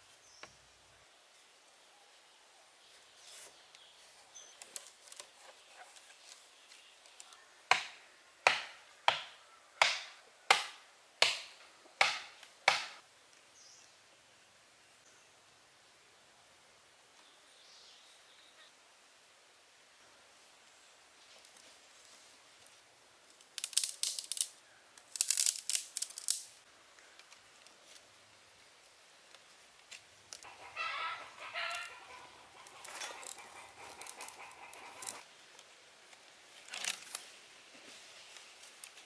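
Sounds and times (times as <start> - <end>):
sticks and cord crackling: 23.3 - 26.6, 32.6 - 37.4
rooster crowing: 30.5 - 33.4.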